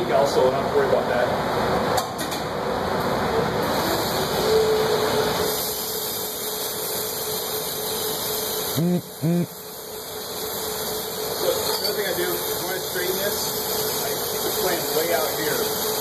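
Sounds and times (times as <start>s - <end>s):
torch hissing: 3.7s - 16.0s
lathe mechanical hum: 6.3s - 16.0s
short low tones: 8.8s - 9.5s.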